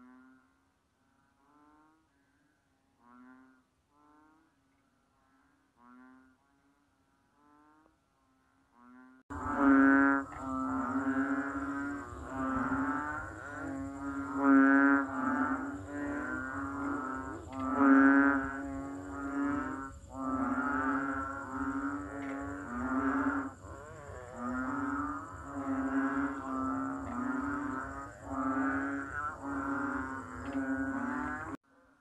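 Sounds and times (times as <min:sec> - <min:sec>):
frogs calling: 0:08.8 - 0:31.6.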